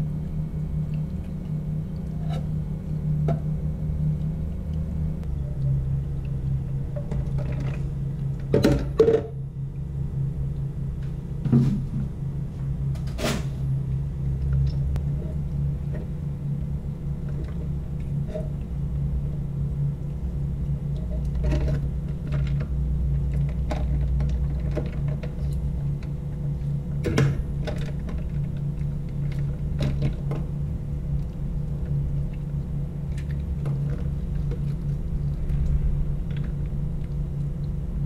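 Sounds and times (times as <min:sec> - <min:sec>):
low steady hum: 0:00.0 - 0:38.0.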